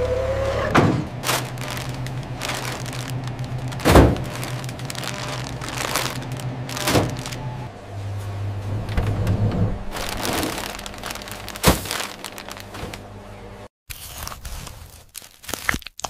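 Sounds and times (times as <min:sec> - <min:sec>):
low steady hum: 0:01.0 - 0:13.7
dull thuds and knocks: 0:03.8 - 0:04.6.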